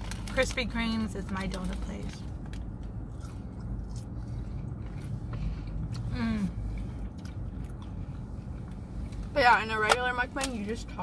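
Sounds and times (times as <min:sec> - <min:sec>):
low steady hum: 0:00.0 - 0:11.0
chewing and biting food: 0:01.4 - 0:09.3.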